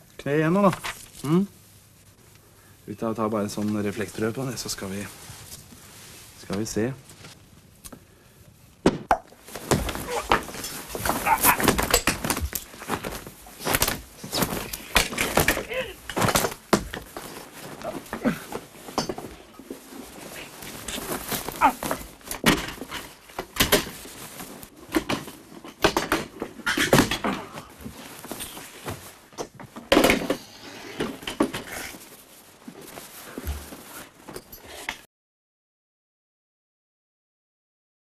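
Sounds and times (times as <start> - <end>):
bumps and thumps of scuffling: 9.3 - 30.4, 31.0 - 34.8.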